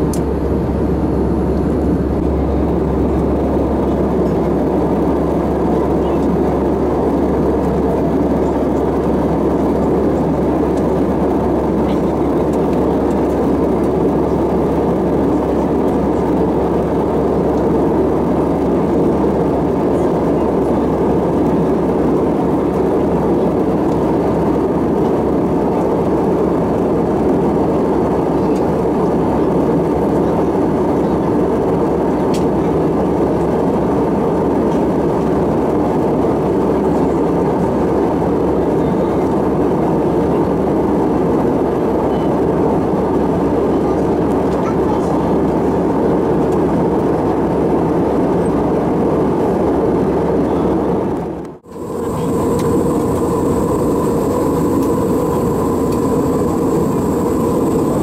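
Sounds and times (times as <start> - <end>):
airflow rushing over cabin: 0.0 - 32.0, 45.1 - 58.0
jet engines humming: 0.0 - 58.0.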